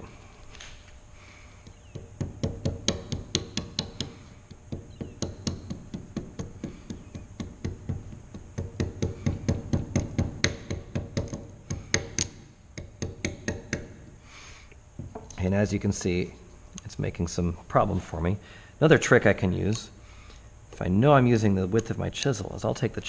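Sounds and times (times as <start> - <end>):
mallet tapping chisel handle: 1.6 - 14.0.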